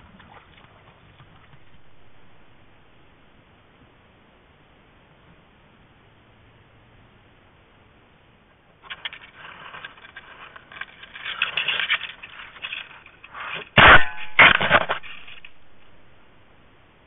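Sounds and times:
scraping against camera housing: 8.8 - 13.8.

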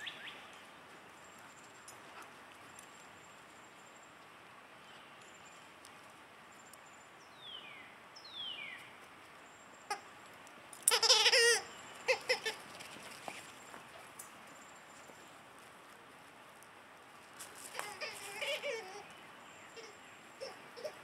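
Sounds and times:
rubber squeaker toy squeaking: 10.9 - 12.6.

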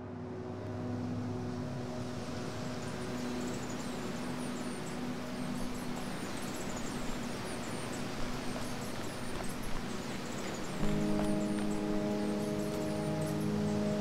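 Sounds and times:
small birds chirping: 2.8 - 14.0.

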